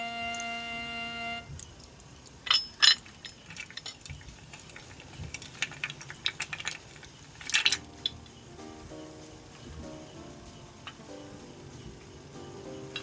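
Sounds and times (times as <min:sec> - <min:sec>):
background music chord: 0:00.0 - 0:01.5, 0:07.8 - 0:13.0
ice clinking against glass: 0:01.6 - 0:07.8
liquid pouring over ice: 0:03.2 - 0:07.8.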